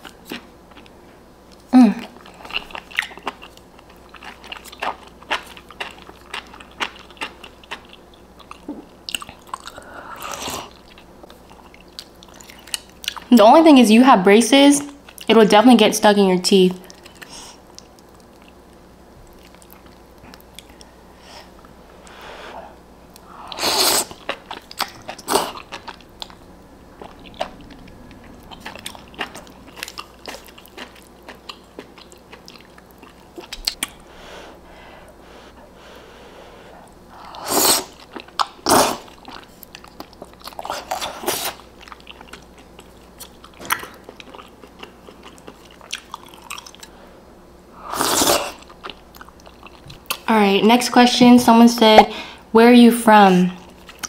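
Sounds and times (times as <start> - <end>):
wet chewing: 1.5 - 13.3, 16.8 - 20.9, 23.1 - 34.0, 37.8 - 47.0, 48.1 - 50.3
person slurping noodles: 23.4 - 24.2, 37.2 - 38.0, 47.8 - 48.6.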